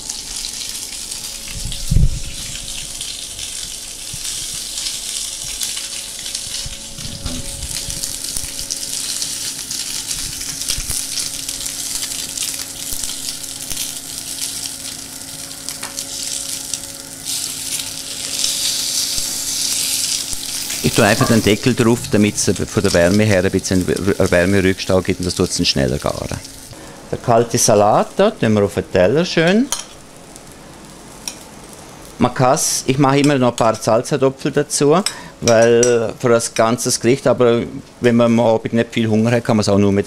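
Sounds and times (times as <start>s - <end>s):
fish sizzling on a grill pan: 0.0s - 26.8s, 29.9s - 32.8s.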